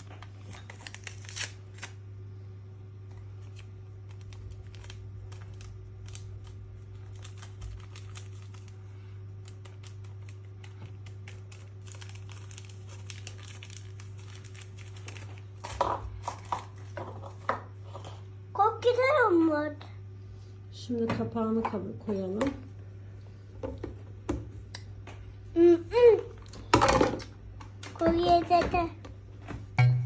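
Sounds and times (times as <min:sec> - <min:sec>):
paper sachet crinkling: 0:00.0 - 0:02.1, 0:03.1 - 0:16.8
steady low hum: 0:00.0 - 0:28.0, 0:28.8 - 0:30.0.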